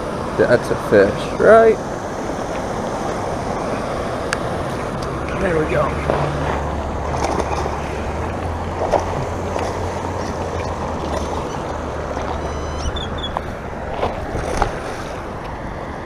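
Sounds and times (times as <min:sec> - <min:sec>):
fish splashing at water surface: 0:06.0 - 0:15.3.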